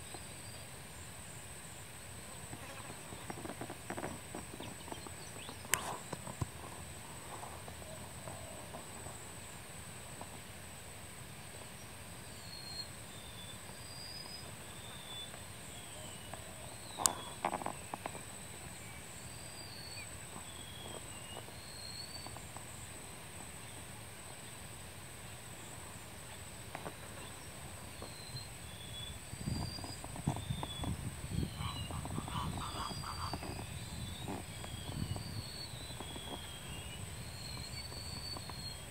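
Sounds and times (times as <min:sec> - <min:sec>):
steady hiss: 0:00.0 - 0:38.9
whistled shorebird calls: 0:28.0 - 0:38.9.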